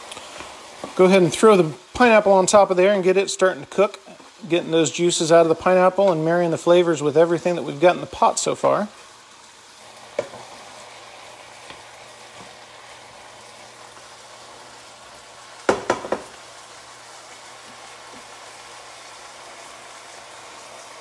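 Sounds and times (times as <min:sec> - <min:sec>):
food sizzling in a pot: 0:00.0 - 0:21.0
utensil knocking against pot: 0:15.7 - 0:16.3.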